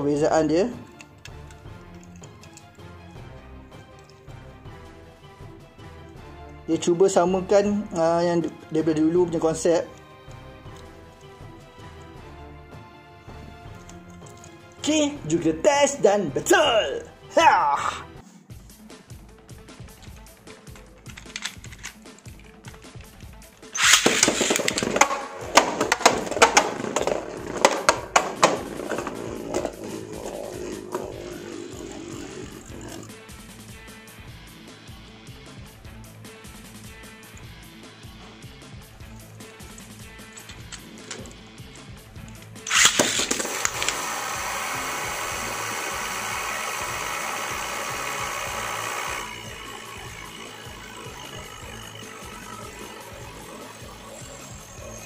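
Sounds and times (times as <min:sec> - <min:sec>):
skittering clicks: 0:19.8 - 0:33.2, 0:42.2 - 0:55.0
spinning top rattling in plastic stadium: 0:19.9 - 0:33.0, 0:42.3 - 0:55.0
spinning top launcher rip: 0:23.8 - 0:33.2, 0:42.6 - 0:55.0.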